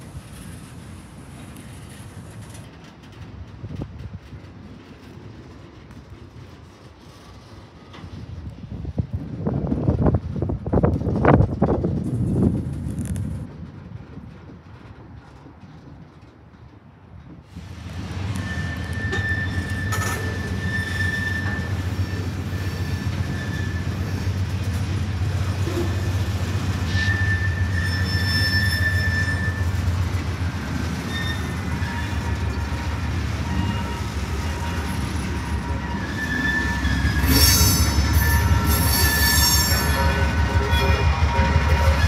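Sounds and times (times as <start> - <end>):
diesel locomotive: 0.0 - 42.0
train cars rumbling on rails: 0.0 - 42.0
wheel squeal: 18.1 - 24.4, 25.6 - 42.0.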